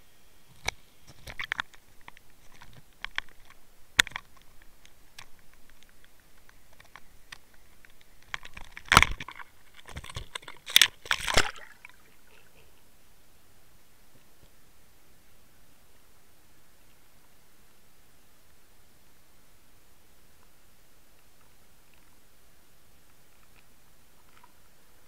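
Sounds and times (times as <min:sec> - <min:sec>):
water splashing and crackling: 0:00.5 - 0:12.7, 0:23.0 - 0:25.0.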